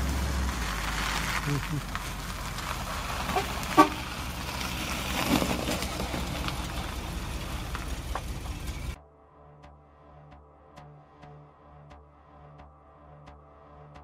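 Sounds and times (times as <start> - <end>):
car engine rolling past: 0.0 - 9.0
car horn toot: 3.3 - 4.2.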